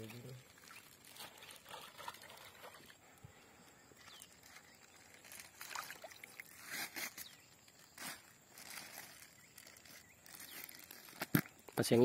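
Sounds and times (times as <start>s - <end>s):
water trickling and splashing: 0.0s - 7.4s.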